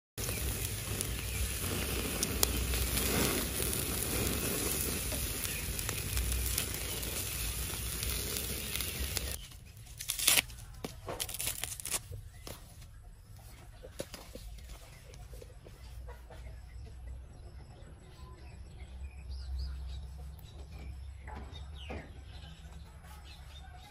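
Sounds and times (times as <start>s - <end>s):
rustling crinkling noise: 0.2s - 15.9s.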